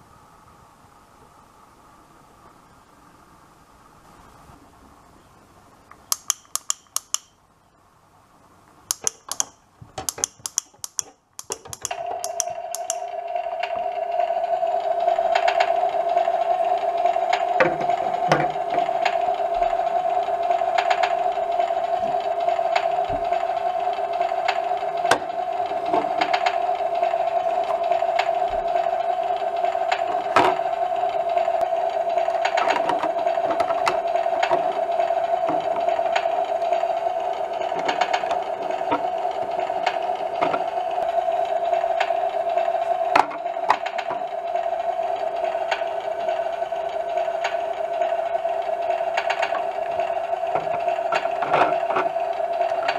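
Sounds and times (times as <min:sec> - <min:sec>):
plastic lighter clicks: 0:05.9 - 0:07.4, 0:08.9 - 0:13.0.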